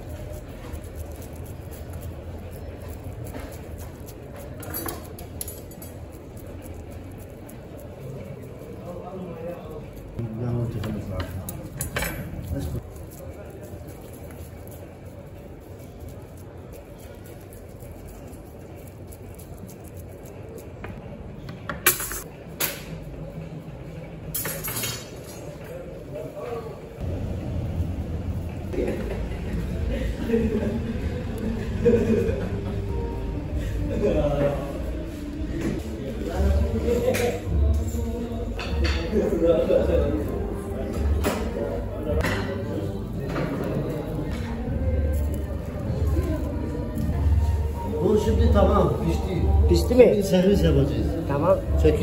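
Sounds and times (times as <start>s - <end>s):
metal skewers clinking: 0.3s - 8.6s
steady low hum: 27.0s - 38.5s.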